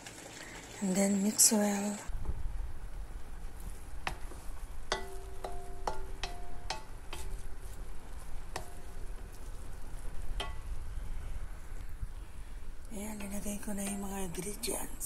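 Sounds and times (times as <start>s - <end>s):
noodles cooking: 0.0s - 15.0s
metal utensil clinking on pan: 4.9s - 7.3s, 10.4s - 10.7s, 13.2s - 14.4s.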